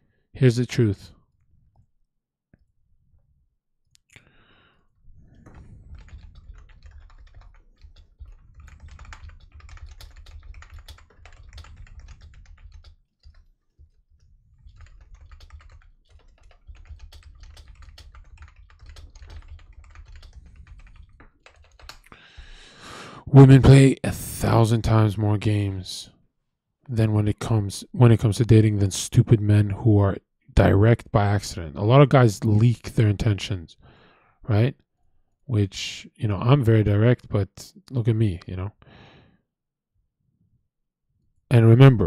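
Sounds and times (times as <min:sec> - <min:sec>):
typing on keyboard: 0:05.3 - 0:22.2.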